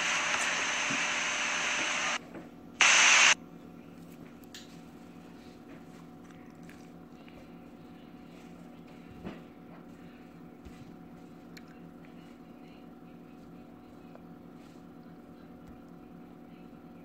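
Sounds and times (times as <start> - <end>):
steady hiss: 0.0 - 2.2, 2.8 - 3.4.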